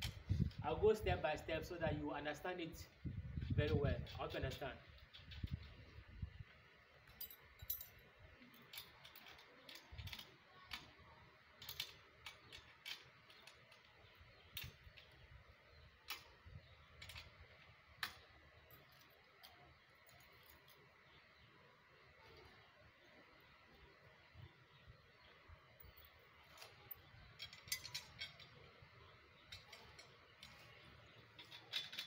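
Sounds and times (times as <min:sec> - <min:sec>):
metallic clicks and clinks: 0:07.0 - 0:20.9, 0:25.7 - 0:32.0.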